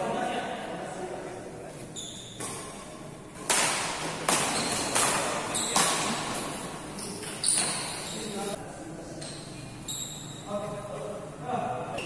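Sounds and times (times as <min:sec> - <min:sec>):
rackets hitting shuttlecock: 0:02.3 - 0:06.4.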